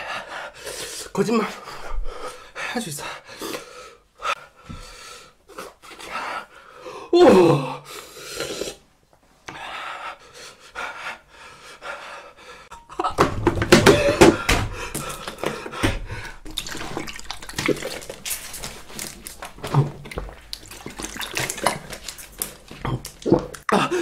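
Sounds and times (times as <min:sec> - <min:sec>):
man groaning and breathing hard: 0:07.0 - 0:07.9
man gulping water: 0:14.9 - 0:24.0.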